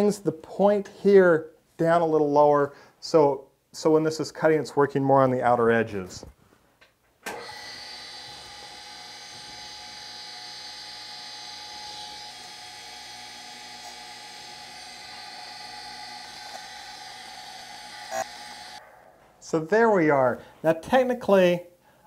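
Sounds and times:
surface grinder whining: 7.4s - 19.3s.

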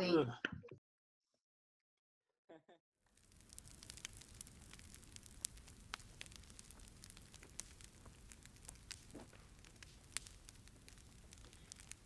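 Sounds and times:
campfire crackling and popping: 3.1s - 12.0s.

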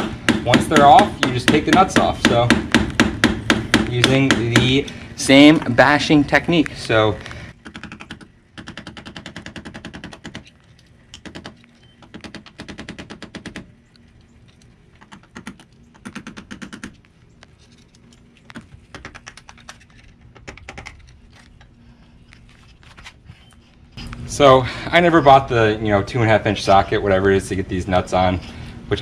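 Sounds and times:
hammer rapping on metal screwdriver: 0.3s - 4.8s.

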